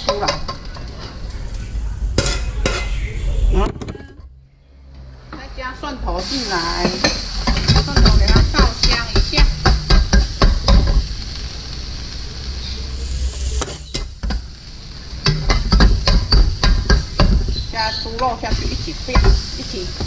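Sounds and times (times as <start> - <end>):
garlic sizzling in hot oil: 0.0 - 2.3, 6.2 - 20.0
spatula scraping a wok: 6.2 - 11.6, 12.4 - 20.0.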